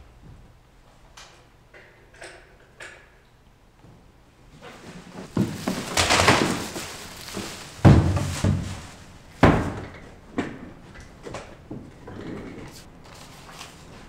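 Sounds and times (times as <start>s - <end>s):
paper rustling: 4.7s - 9.1s, 13.0s - 14.0s
slams on wooden desk: 9.4s - 9.9s.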